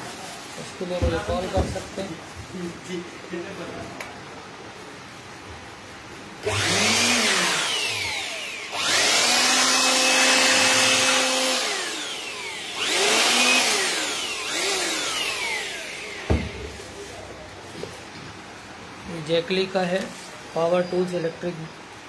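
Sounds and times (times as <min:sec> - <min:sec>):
electric air blower running: 0:06.4 - 0:18.0
sharp knock: 0:16.3 - 0:16.9.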